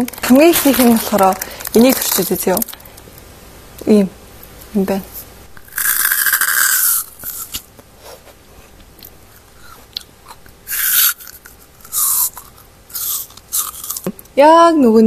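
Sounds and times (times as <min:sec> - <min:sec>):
crunchy bites into ice pop: 0:05.6 - 0:07.8.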